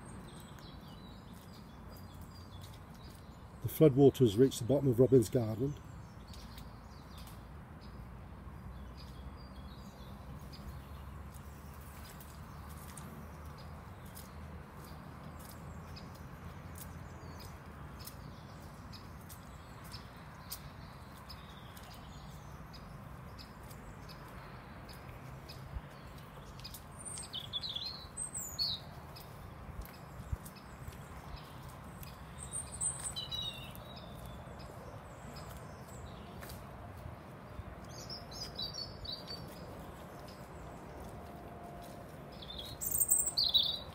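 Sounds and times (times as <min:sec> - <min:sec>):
small bird chirping: 0:08.8 - 0:36.6, 0:42.3 - 0:43.9.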